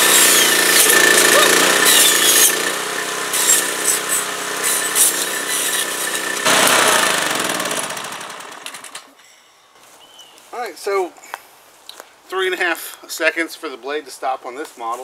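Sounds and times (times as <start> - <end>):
trimmer engine running: 0.0 - 9.1.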